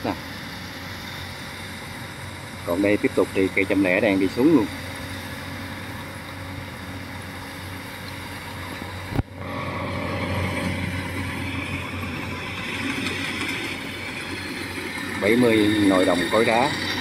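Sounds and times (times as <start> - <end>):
combine harvester engine hum: 0.0 - 17.0
threshing machinery rushing: 8.5 - 17.0.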